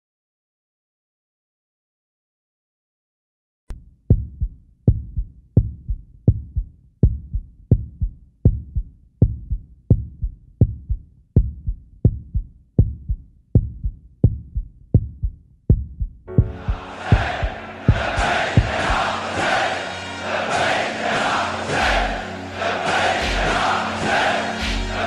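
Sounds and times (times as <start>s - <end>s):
deep thumping heartbeat pulse: 4.1s - 19.0s.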